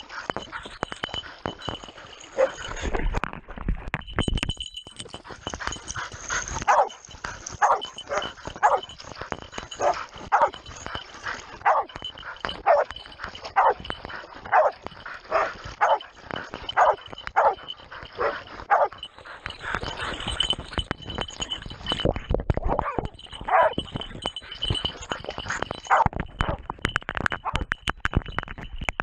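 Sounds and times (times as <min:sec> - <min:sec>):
dog barking: 0:06.6 - 0:07.0, 0:07.6 - 0:08.9, 0:09.7 - 0:10.6, 0:11.6 - 0:12.0, 0:12.6 - 0:13.9, 0:14.5 - 0:16.0, 0:16.7 - 0:19.0, 0:22.7 - 0:23.8.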